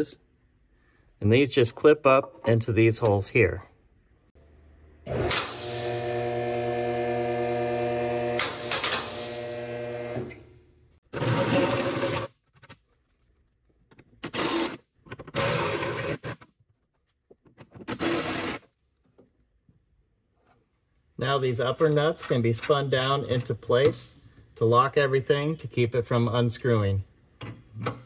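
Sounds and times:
power tool motor running: 5.1s - 10.3s.

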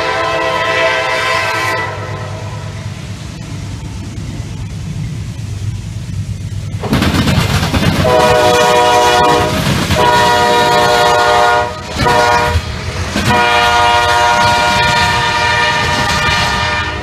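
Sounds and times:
locomotive air horn blasts: 0.0s - 2.7s, 8.0s - 12.7s, 13.3s - 17.0s
freight train rumble: 0.0s - 17.0s.

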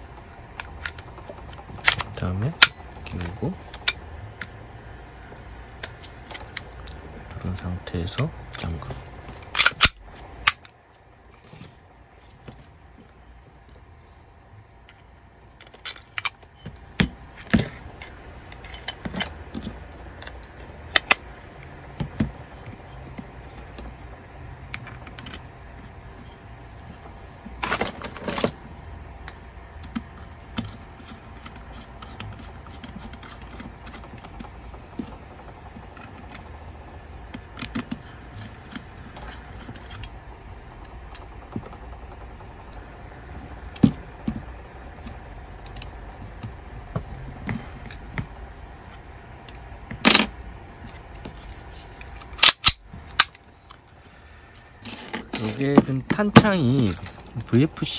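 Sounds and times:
faint low hum: 0.0s - 57.9s
pistol parts rattling: 9.4s - 10.8s, 52.0s - 53.9s.

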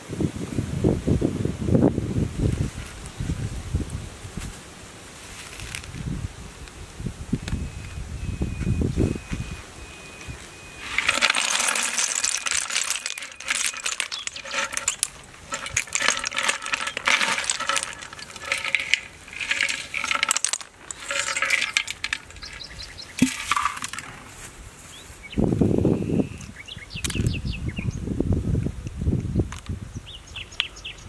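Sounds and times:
snail shells clattering: 10.8s - 24.4s.

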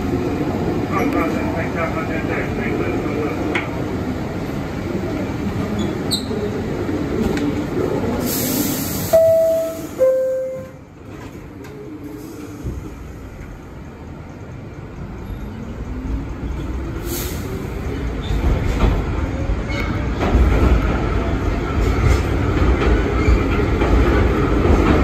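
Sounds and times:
train rumble: 0.0s - 25.0s
air brake hiss: 8.2s - 10.1s, 17.0s - 17.6s.

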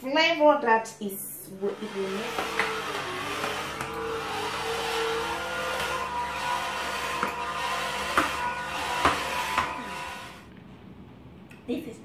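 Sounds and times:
slow juicer running: 1.6s - 10.5s.

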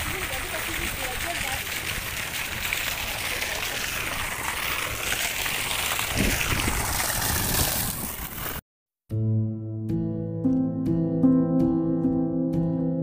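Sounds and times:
water splashing in a pool: 0.0s - 8.6s
plucked-string music: 9.1s - 13.0s.

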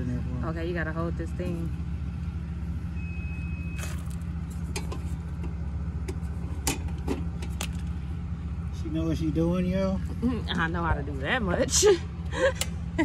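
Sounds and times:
vehicle engine idling: 0.0s - 13.0s
short high beep: 2.9s - 3.9s.

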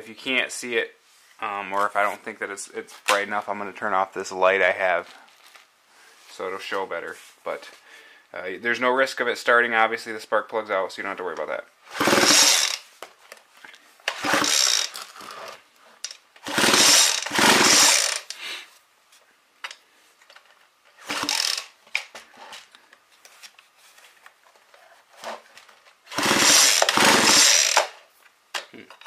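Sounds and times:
chainsaw recoil starter pulled: 11.9s - 12.8s, 14.1s - 18.4s, 21.0s - 22.1s, 26.1s - 28.0s
engine cranking with fast rattle: 11.9s - 12.8s, 14.1s - 15.0s, 16.4s - 18.3s, 21.0s - 21.7s, 26.1s - 27.9s.

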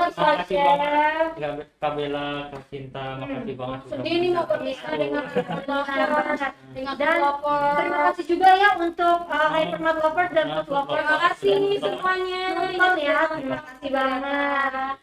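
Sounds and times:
woman singing: 4.0s - 15.0s.

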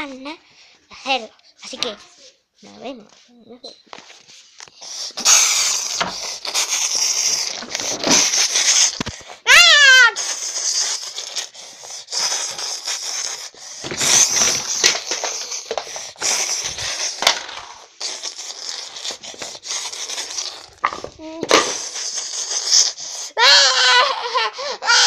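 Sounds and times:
rustling against microphone: 6.0s - 9.4s.

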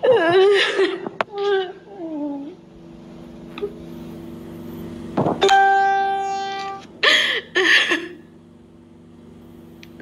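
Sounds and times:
woman sobbing: 0.0s - 2.6s, 7.0s - 8.3s
woman wailing: 0.0s - 2.6s.

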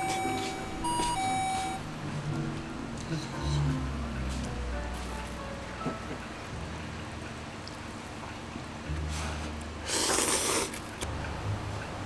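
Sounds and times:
person slurping noodles: 9.8s - 11.0s.

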